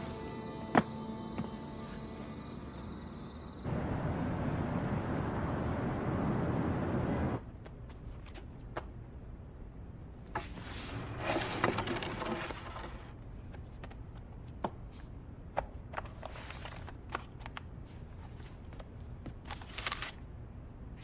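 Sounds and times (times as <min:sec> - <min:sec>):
books rustling and sliding: 0:10.3 - 0:14.0, 0:15.9 - 0:17.6.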